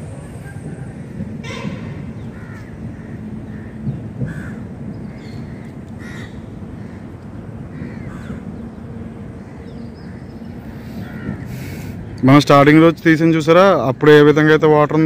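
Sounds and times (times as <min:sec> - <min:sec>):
crows cawing: 0:01.0 - 0:08.6, 0:09.4 - 0:11.9.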